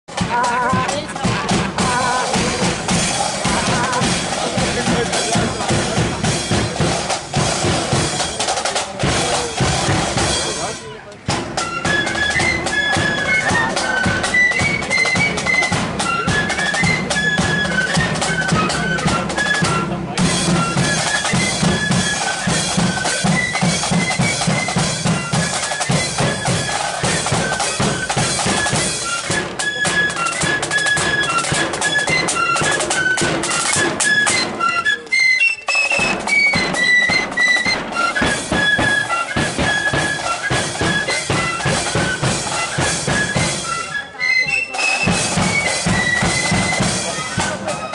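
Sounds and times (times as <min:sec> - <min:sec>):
flutes playing melody: 0:00.1 - 0:47.9
snare drums beating march rhythm: 0:00.1 - 0:47.9
bass drum beating: 0:00.2 - 0:08.2.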